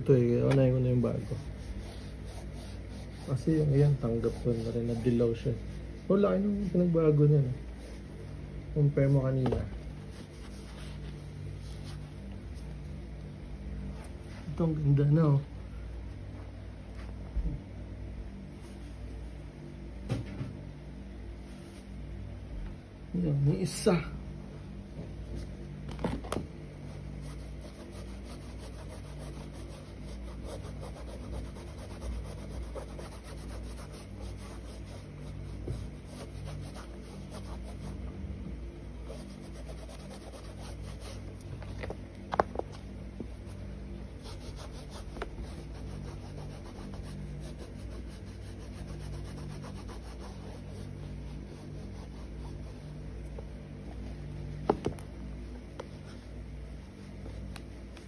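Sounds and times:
wipe rubbing a sneaker: 0.7 - 13.2, 18.4 - 19.5, 21.4 - 22.5, 26.7 - 38.1, 38.9 - 58.0
shoe knocks: 54.6 - 55.0.

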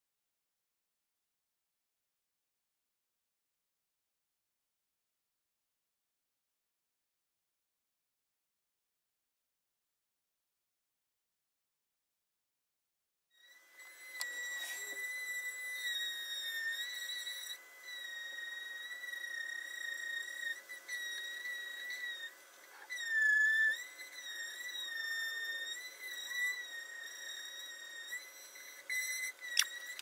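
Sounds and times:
woodworking tool squealing: 13.4 - 30.0.

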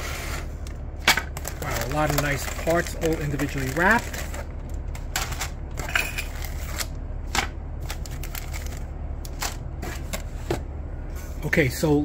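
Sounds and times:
steady low hum: 0.0 - 12.0
plastic bags crinkling: 0.6 - 7.0, 7.8 - 9.8.

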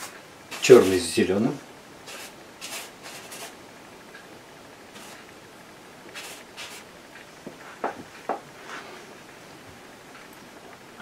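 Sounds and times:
bristle brush scratching paint: 0.0 - 1.2, 2.1 - 3.6, 4.9 - 5.3, 6.1 - 6.9.

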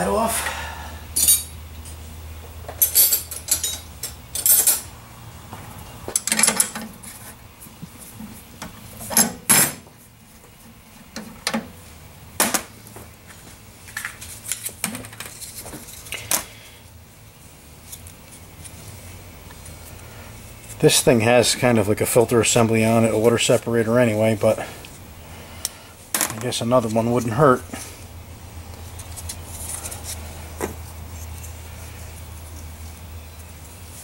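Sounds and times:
metal tools clinking: 1.2 - 1.6, 2.8 - 4.9.

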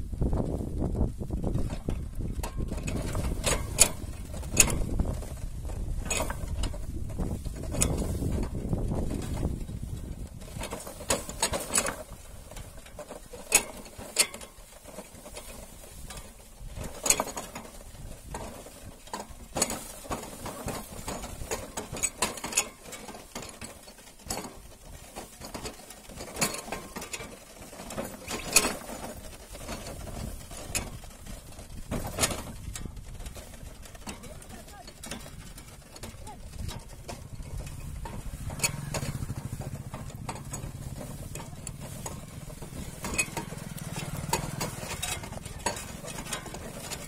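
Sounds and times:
wooden cart creaking and knocking: 0.0 - 47.0.

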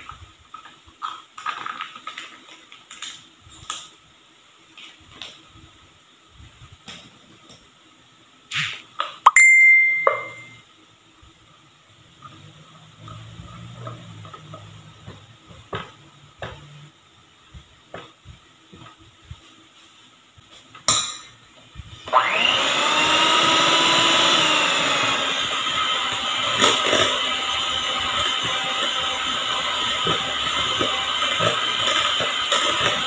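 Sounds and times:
electric hand mixer running: 22.0 - 33.0.

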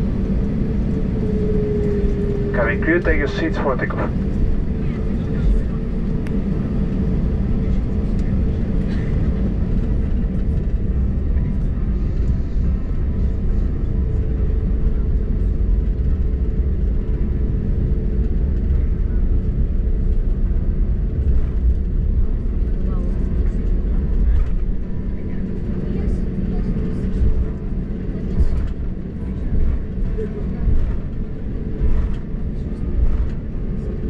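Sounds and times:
jet engines low rumble: 0.0 - 34.0
steady hum: 0.0 - 34.0.

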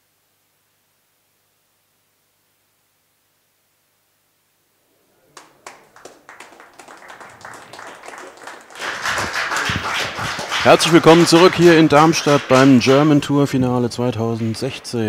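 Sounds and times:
audience clapping: 5.2 - 15.0.

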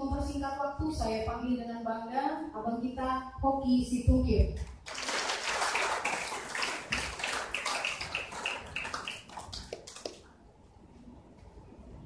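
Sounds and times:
audience applauding: 4.8 - 10.3.

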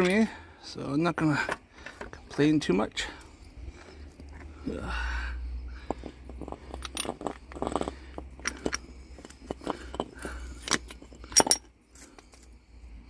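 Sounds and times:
metal hand tools clinking: 6.4 - 11.7.

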